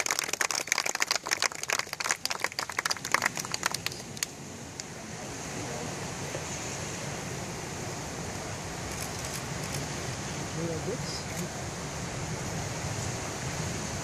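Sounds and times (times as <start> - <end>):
crowd applauding: 0.0 - 4.3
steady rushing noise: 2.8 - 14.0.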